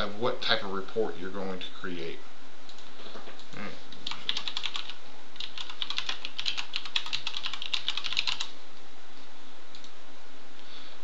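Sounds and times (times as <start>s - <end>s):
typing on computer keyboard: 4.0s - 8.5s.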